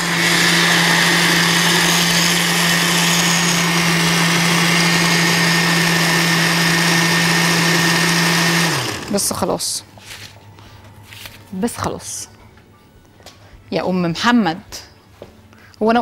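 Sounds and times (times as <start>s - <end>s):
blender motor running: 0.0s - 9.3s.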